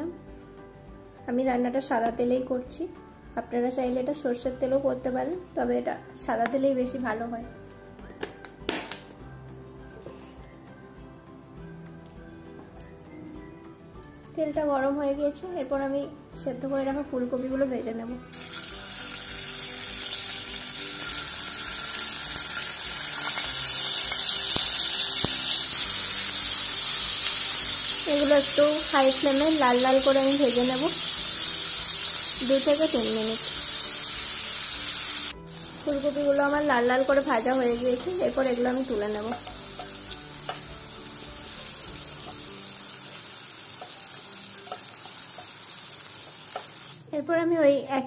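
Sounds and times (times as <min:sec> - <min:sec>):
vegetables sizzling in hot oil: 0:18.3 - 0:47.1.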